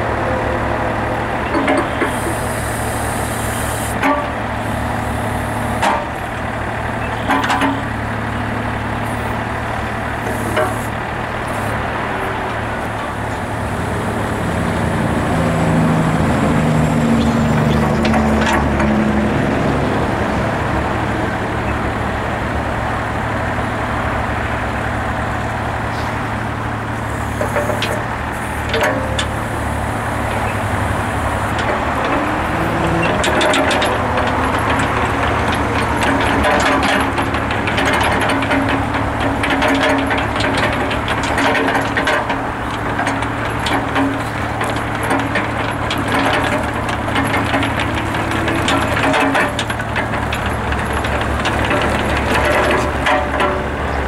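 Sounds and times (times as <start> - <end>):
diesel engine labouring: 0.0 - 54.0
metallic clanks from excavator arm: 1.4 - 2.3, 3.9 - 4.4, 5.8 - 6.2, 7.0 - 7.9, 27.3 - 29.5, 31.5 - 54.0.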